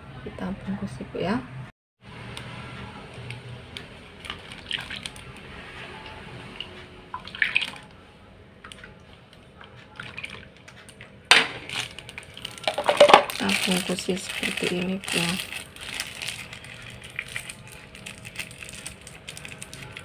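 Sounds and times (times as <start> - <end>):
liquid splashing and dripping: 4.2 - 5.4, 6.5 - 7.9, 8.6 - 13.8
plastic bag crinkling: 11.3 - 20.0.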